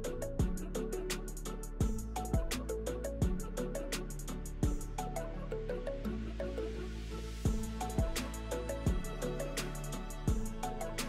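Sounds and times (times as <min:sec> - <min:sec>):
melody over steady beat: 0:00.0 - 0:06.4, 0:07.4 - 0:11.0
deep kick drum hit: 0:07.5 - 0:08.2, 0:10.3 - 0:10.5.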